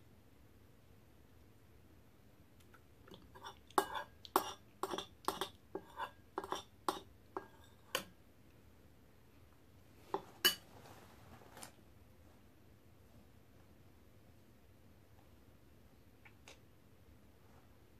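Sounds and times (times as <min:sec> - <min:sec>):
metal spoon clinking on glass bowl: 0:03.4 - 0:08.1.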